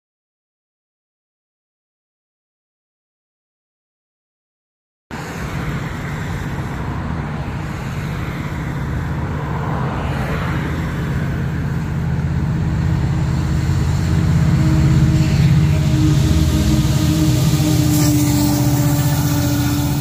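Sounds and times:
diesel locomotive engine drone: 5.1s - 20.0s.

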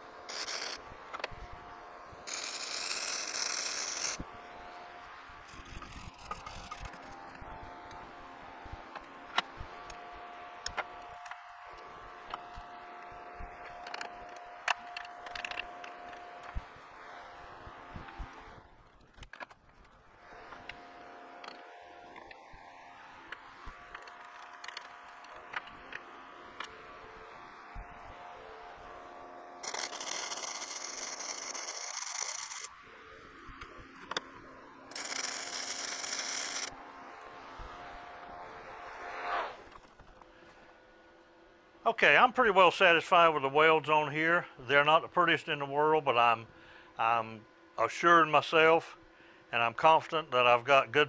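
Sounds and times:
welding arc sizzling hiss: 0.0s - 0.9s, 2.2s - 4.7s, 29.6s - 32.7s, 34.9s - 36.7s
faint steady hum: 0.0s - 51.0s.

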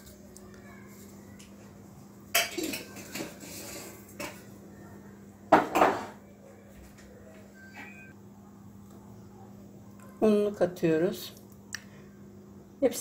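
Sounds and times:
utensils and dishes clinking: 2.3s - 4.6s.

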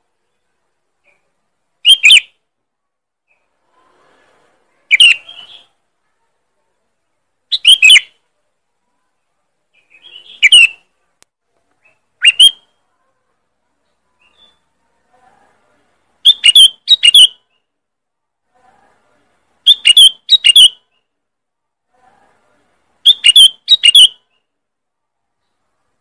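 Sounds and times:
bulbul calls: 1.8s - 2.3s, 4.9s - 5.7s, 7.5s - 8.2s, 9.9s - 10.8s, 11.8s - 12.6s, 16.2s - 17.4s, 19.6s - 20.8s, 23.0s - 24.2s.

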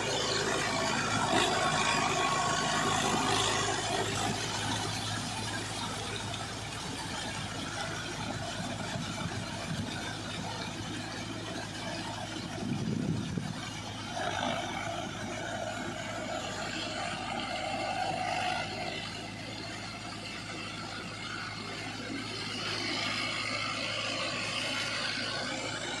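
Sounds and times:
rotavator churning mud: 0.0s - 26.0s
tractor diesel engine running: 0.0s - 26.0s.

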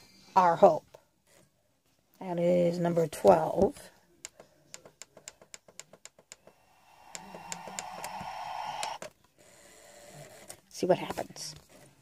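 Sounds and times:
whirring hiss: 6.4s - 9.1s.

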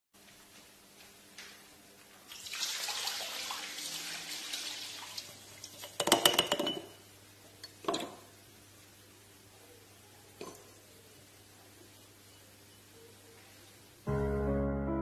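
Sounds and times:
liquid pouring and splashing: 2.3s - 6.1s.

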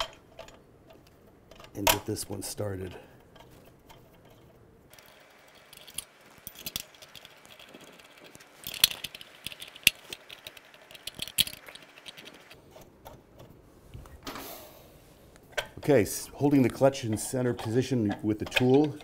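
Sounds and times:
metal parts rattling and clinking: 0.0s - 12.6s, 15.5s - 19.0s.

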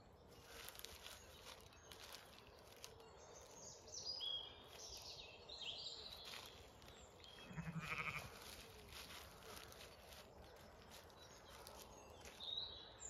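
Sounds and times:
small birds chirping: 0.0s - 13.0s
sheep bleating: 7.4s - 8.4s.

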